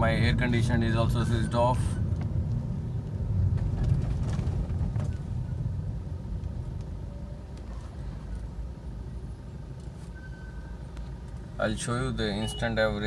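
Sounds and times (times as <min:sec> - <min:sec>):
car cabin road and engine rumble: 0:00.0 - 0:13.0.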